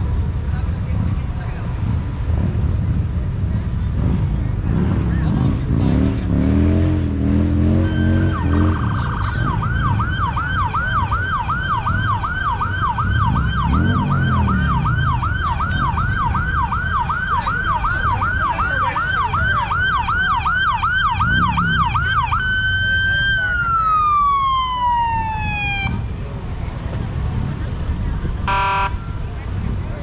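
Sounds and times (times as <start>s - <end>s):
vehicle engine rumble: 0.0s - 30.0s
electronic siren: 7.6s - 26.0s, 28.5s - 29.2s.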